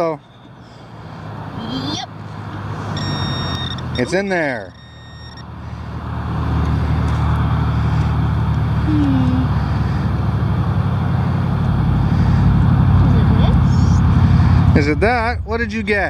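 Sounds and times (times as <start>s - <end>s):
highway traffic rumble: 0.0s - 16.0s.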